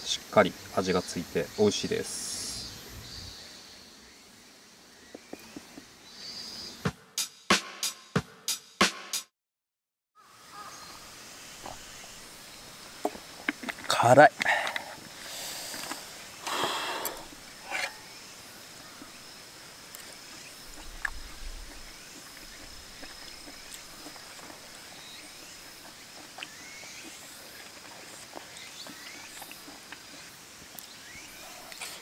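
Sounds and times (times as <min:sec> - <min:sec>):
thin steady high whine: 0:10.4 - 0:32.0
faint chirps: 0:13.9 - 0:32.0
person breathing out hard: 0:14.4 - 0:17.3
small eating clicks: 0:19.8 - 0:32.0.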